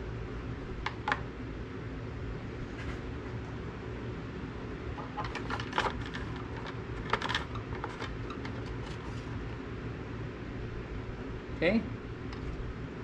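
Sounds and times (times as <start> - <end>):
steady low hum: 0.0 - 13.0
dipstick clicking and scraping: 5.0 - 9.3.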